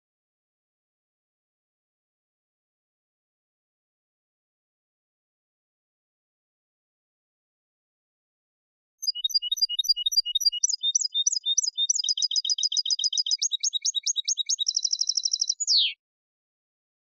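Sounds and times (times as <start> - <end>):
goldfinch singing: 9.0 - 16.0.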